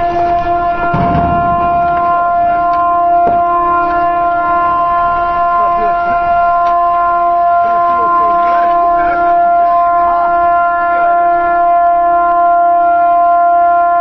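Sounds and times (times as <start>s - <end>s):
ship horn long steady note: 0.0s - 14.0s.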